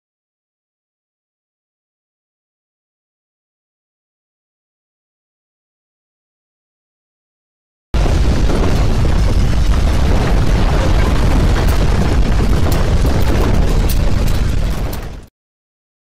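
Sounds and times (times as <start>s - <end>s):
landslide rumbling: 8.0s - 15.3s.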